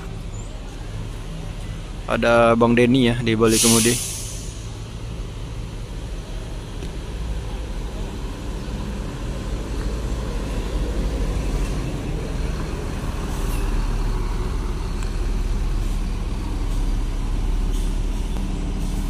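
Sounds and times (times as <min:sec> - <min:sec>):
diesel bus engine rumbling: 0:00.0 - 0:19.0
air brake hisses: 0:03.5 - 0:04.8.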